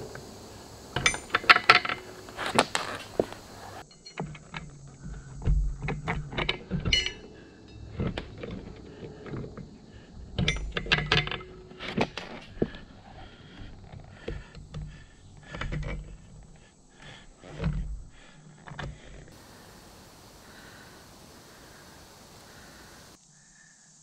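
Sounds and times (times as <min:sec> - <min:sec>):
metal clinks and knocks: 0:00.9 - 0:09.6, 0:10.4 - 0:12.7.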